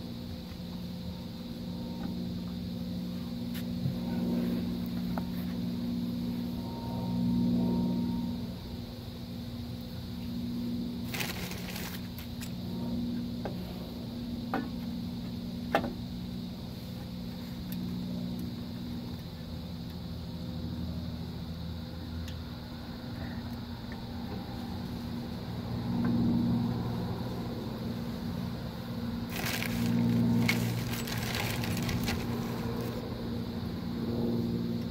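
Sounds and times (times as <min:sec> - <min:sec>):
steady low hum: 0:00.0 - 0:34.9
rustling: 0:11.1 - 0:12.3, 0:29.3 - 0:33.0.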